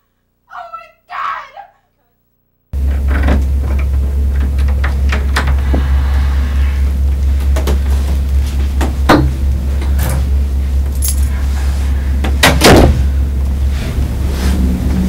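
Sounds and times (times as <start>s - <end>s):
steady low hum: 1.8s - 15.0s
keys jangling: 10.9s - 11.4s.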